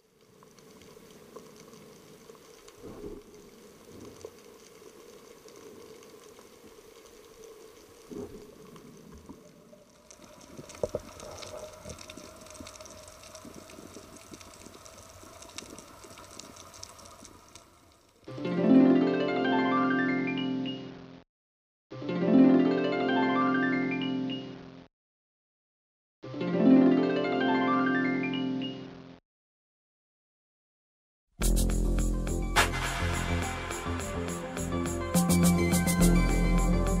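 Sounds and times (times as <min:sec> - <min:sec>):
underwater low hum: 0:00.0 - 0:18.2
crackling hiss: 0:00.0 - 0:18.4, 0:31.4 - 0:37.0.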